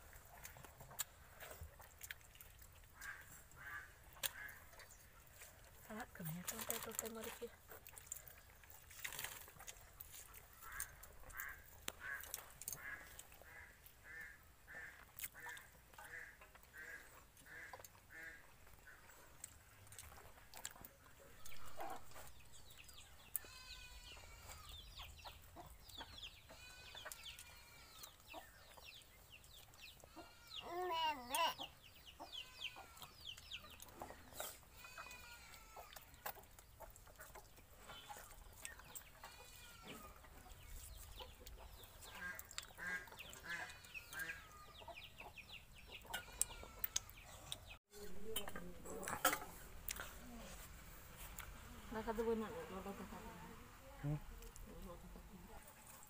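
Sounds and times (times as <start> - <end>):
chickens clucking: 9.8 - 51.9.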